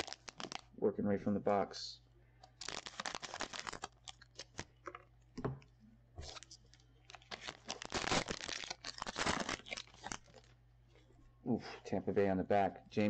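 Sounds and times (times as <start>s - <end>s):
foil wrapper crinkling: 0.0s - 0.7s, 2.5s - 4.7s, 6.2s - 10.6s.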